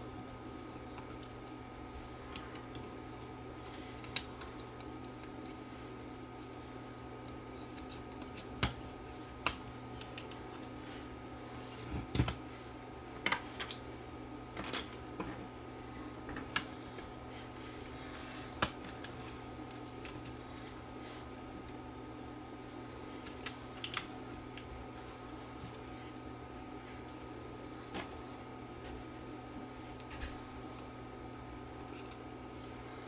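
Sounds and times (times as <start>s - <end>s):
low electrical hum: 0.0s - 33.0s
small parts clicking and tapping: 2.3s - 5.6s, 23.2s - 24.7s.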